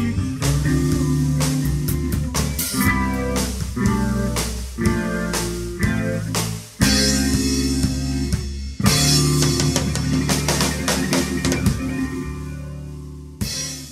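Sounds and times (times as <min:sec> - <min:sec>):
drums playing: 0:00.0 - 0:13.9
rock band chords: 0:00.0 - 0:13.9.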